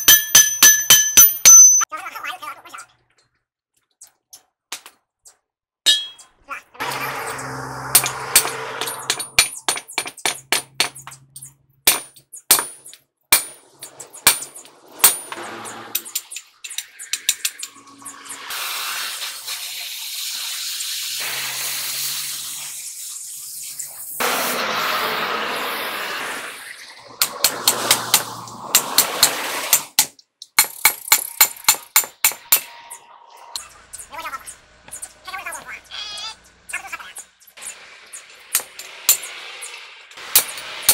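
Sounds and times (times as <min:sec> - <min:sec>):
hammer and chisel strikes: 0:00.0 - 0:01.9, 0:05.9 - 0:06.3, 0:06.9 - 0:16.3, 0:27.2 - 0:32.9
gas cutting torch hissing: 0:15.3 - 0:29.9.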